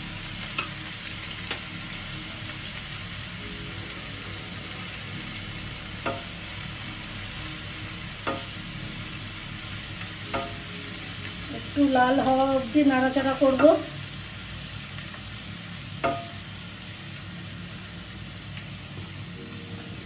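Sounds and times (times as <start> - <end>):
garlic sizzling in hot oil: 0.0 - 20.0
spatula knocking against pan: 8.2 - 8.5, 16.0 - 16.4.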